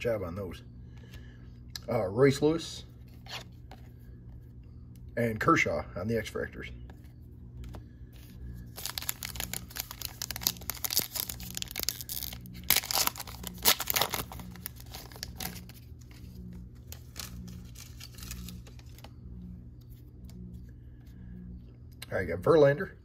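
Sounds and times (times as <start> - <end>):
wrapper rustling: 8.2 - 19.1
foil card pack tearing: 8.7 - 16.2, 16.8 - 19.1.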